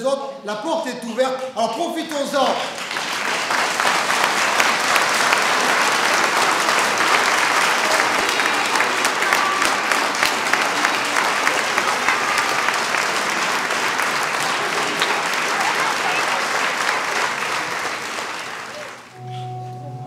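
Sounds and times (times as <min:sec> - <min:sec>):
congregation applauding: 0:01.9 - 0:19.7.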